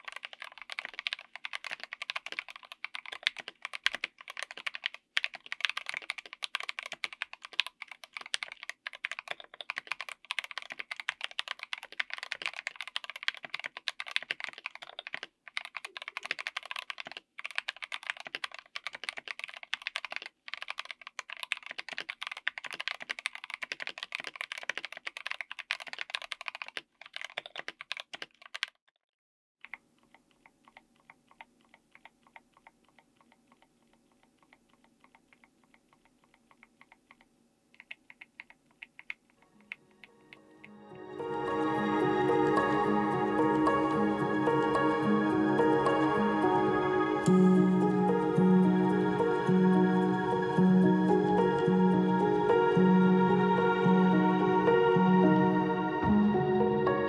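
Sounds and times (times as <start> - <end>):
fast mechanical keyboard typing: 0.0 - 28.8, 29.6 - 40.5, 42.3 - 46.4.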